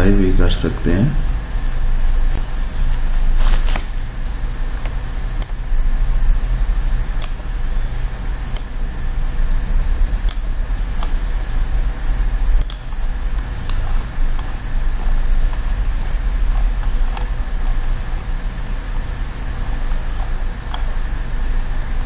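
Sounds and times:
steady low hum: 0.0s - 22.0s
computer mouse clicking: 7.2s - 7.4s, 8.5s - 8.8s, 10.2s - 11.2s, 12.6s - 17.9s, 20.2s - 21.0s.

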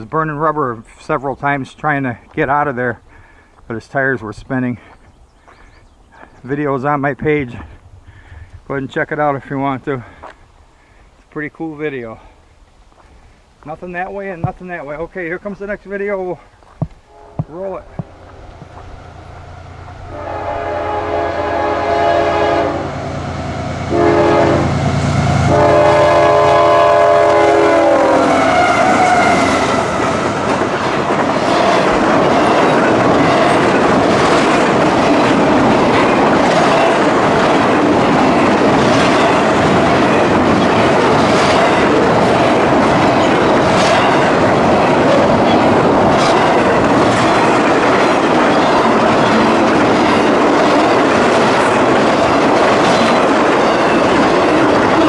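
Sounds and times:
train horn blasts: 17.1s - 18.0s, 19.4s - 30.2s
train wheels clacking over rail joints: 30.2s - 55.0s.

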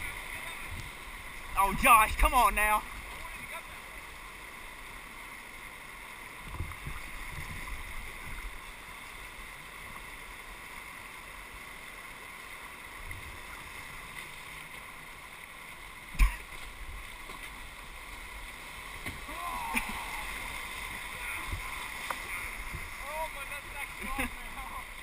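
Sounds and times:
whitewater rushing: 0.0s - 25.0s.

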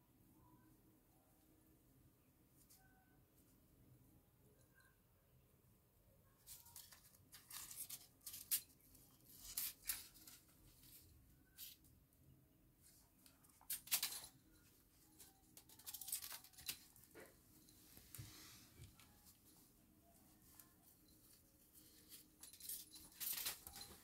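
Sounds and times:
paper ball crinkling: 13.2s - 17.3s.

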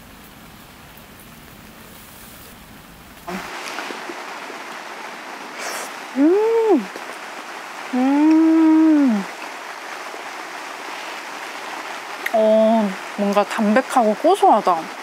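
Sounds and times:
steady rain: 0.0s - 15.0s
person humming mmm: 5.6s - 6.9s, 8.0s - 9.3s.

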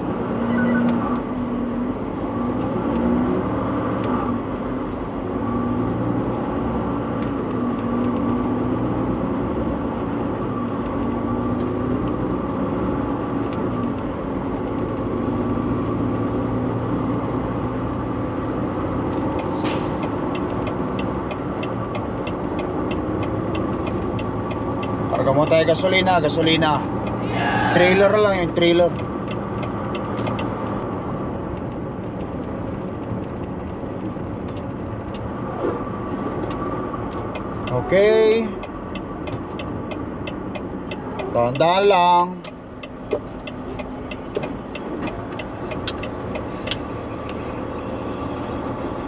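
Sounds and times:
light evenly spaced ticks: 19.1s - 25.1s, 36.5s - 47.6s.

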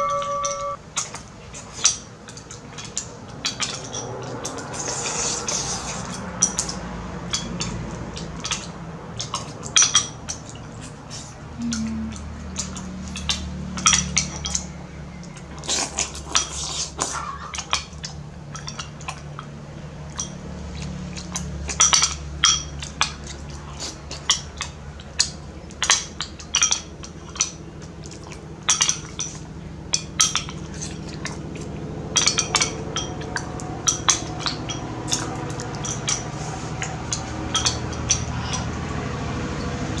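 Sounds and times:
steady low hum: 11.3s - 13.2s.

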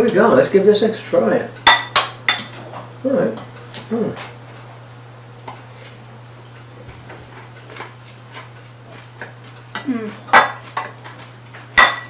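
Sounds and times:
steady low hum: 0.0s - 12.0s
cutlery clinking on ceramic bowls: 1.6s - 2.6s, 8.2s - 11.2s, 11.8s - 12.0s
person humming mm: 9.8s - 10.3s.

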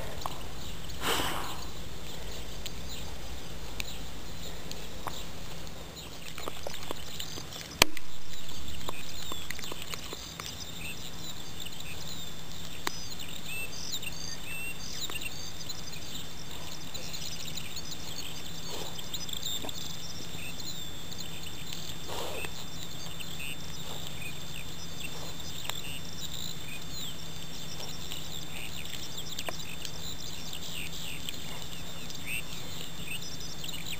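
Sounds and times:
birds chirping: 0.0s - 33.9s
dog chewing and crunching: 4.7s - 11.4s, 21.7s - 33.7s.

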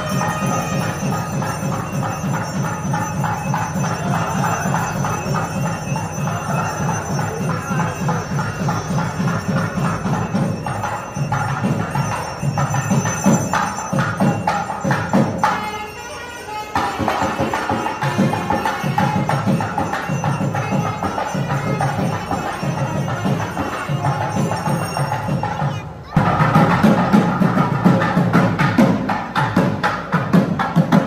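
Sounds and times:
drum beats: 0.0s - 31.0s.

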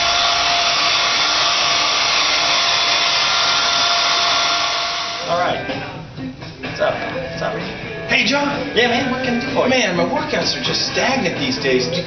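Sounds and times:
hair dryer blowing with whine: 0.0s - 5.6s.

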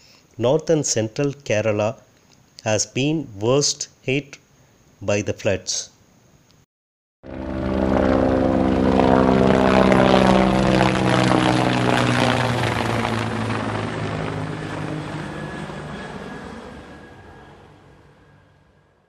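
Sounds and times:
helicopter flying past: 7.2s - 19.0s.

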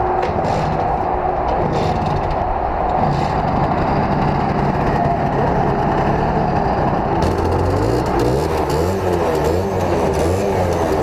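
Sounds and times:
moped engines running: 2.0s - 11.0s
moped engine revving: 3.0s - 11.0s.

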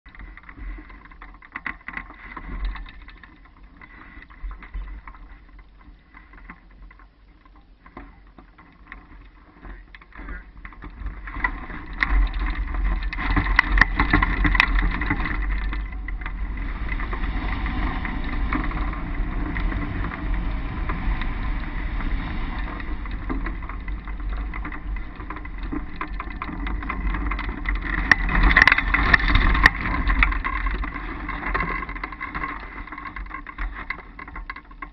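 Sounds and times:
wind rushing over microphone: 11.1s - 34.1s.

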